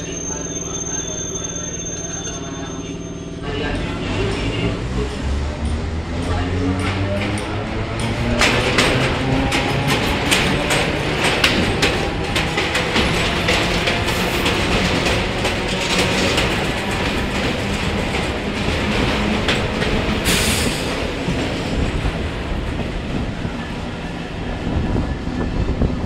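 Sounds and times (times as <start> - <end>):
train passing alongside: 0.0 - 26.0
train wheels clattering over rail joints: 6.7 - 23.0.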